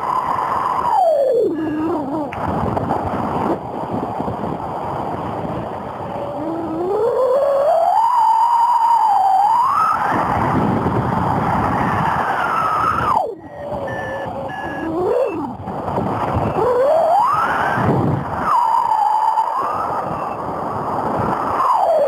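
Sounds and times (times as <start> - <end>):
wavering whistling tone: 0.0 - 2.3, 6.2 - 10.1, 12.0 - 15.6, 18.4 - 20.4, 21.5 - 22.0
strong wind rushing: 0.0 - 22.0.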